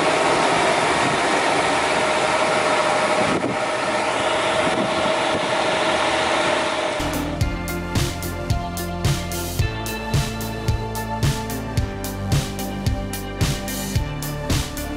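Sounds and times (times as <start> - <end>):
disc sander whirring: 0.0 - 7.4
music: 7.0 - 14.9.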